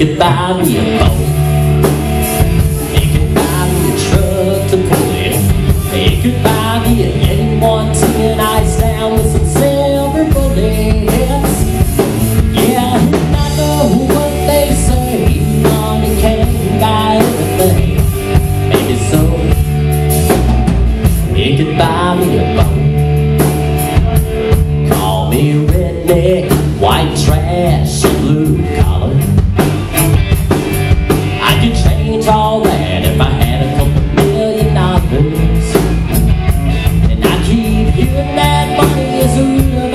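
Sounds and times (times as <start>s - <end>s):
live rock band playing: 0.0s - 39.9s.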